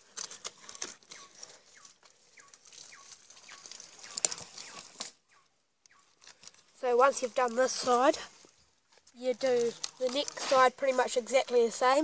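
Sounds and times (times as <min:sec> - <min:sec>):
bird chirping: 0:00.4 - 0:06.4.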